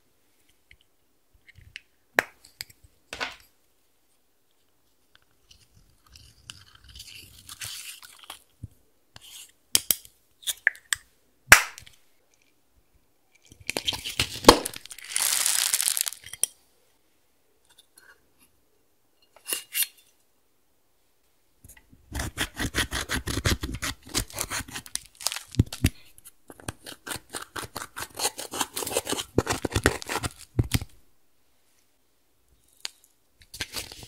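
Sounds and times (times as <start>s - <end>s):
crunchy rustle: 14.0s - 16.2s.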